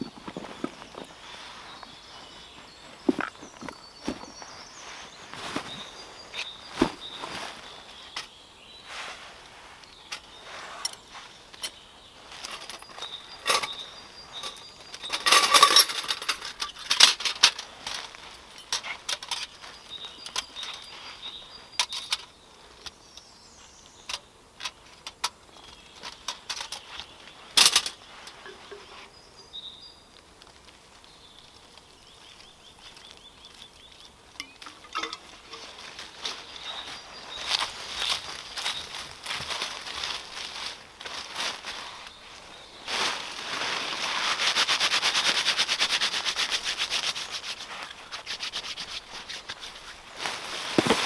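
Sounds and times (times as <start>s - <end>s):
dry leaves rustling: 0.0s - 51.0s
metal clinks and clatters: 14.4s - 19.6s, 34.4s - 35.9s.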